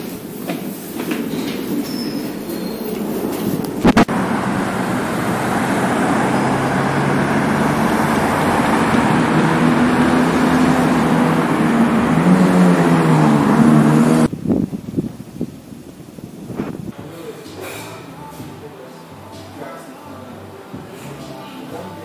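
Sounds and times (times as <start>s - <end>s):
road traffic passing: 0.0s - 18.6s
low engine drone: 3.0s - 14.3s.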